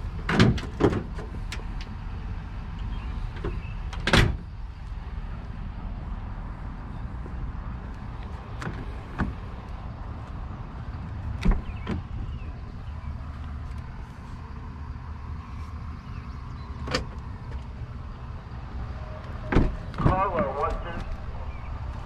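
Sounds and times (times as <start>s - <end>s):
truck door clicks: 11.3s - 12.2s.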